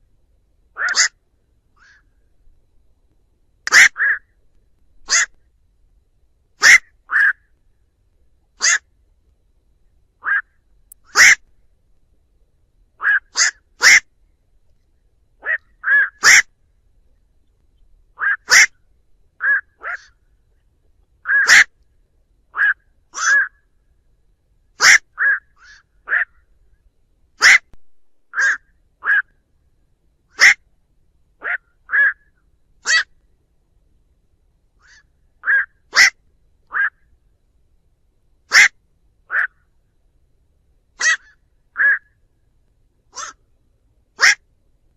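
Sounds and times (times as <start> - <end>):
heron quok calls: 0.8 - 1.2, 1.8 - 2.1, 3.7 - 4.3, 5.0 - 5.4, 6.6 - 7.5, 8.6 - 8.9, 10.2 - 11.5, 13.0 - 14.1, 15.4 - 16.6, 18.2 - 18.8, 19.4 - 20.2, 21.2 - 21.8, 22.5 - 23.6, 24.8 - 26.4, 27.4 - 29.4, 30.3 - 30.6, 31.4 - 33.1, 34.8 - 37.1, 38.5 - 39.7, 41.0 - 42.2, 43.1 - 43.5, 44.2 - 44.4.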